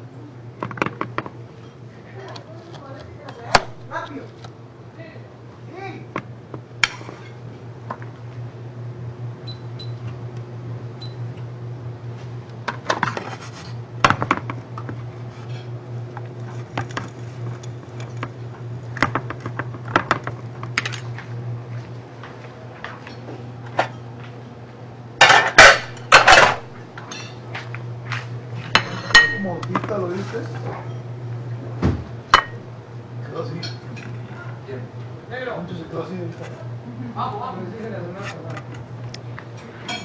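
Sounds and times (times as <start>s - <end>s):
dishes clattering: 25.2s - 27.4s, 28.7s - 29.9s.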